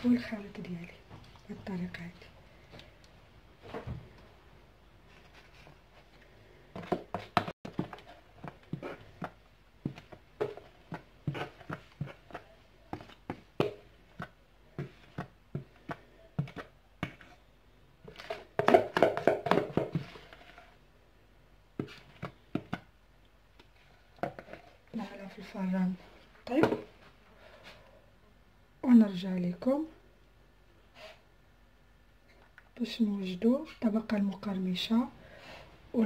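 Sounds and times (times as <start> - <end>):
spatula knocking on plastic bowl: 18.6 - 20.1.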